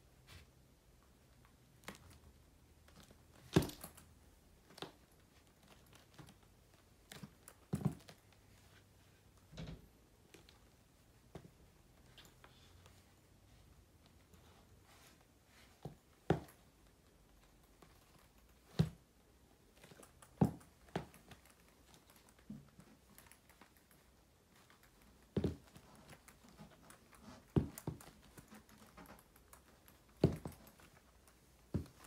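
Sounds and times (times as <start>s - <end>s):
boot heels stomping on hard floor: 25.4s - 25.6s, 30.2s - 30.6s.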